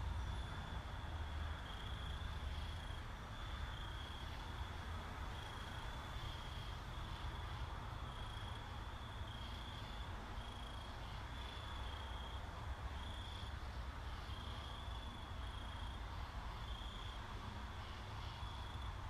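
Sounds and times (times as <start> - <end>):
insect chirping: 0.0 - 19.0.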